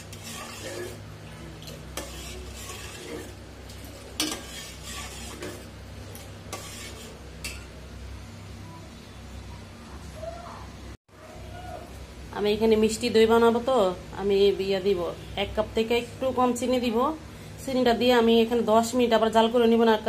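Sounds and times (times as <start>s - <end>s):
metal ladle scraping steel pot: 0.0s - 7.7s.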